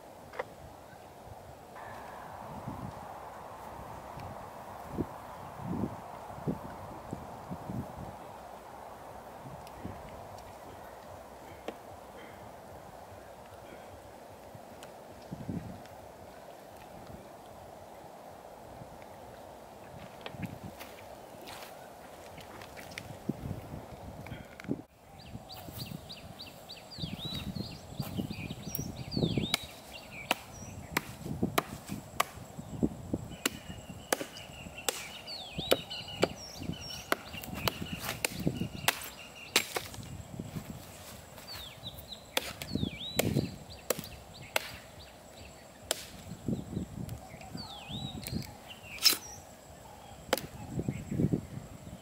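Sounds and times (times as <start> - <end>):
hatchet chopping wood: 29.5 - 32.4, 33.4 - 36.4, 37.0 - 40.0, 42.3 - 44.8, 45.9 - 46.2.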